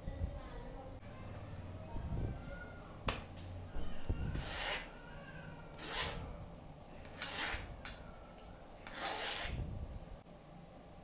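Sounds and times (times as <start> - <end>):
potato scraping through wire sieve: 5.7 - 6.3, 7.0 - 7.7, 8.8 - 9.6.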